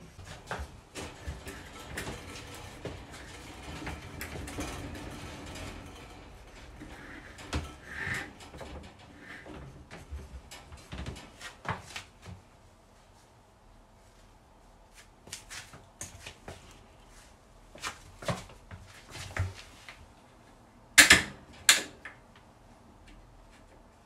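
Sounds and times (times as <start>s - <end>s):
wire dog crate rattling: 0.1s - 12.0s.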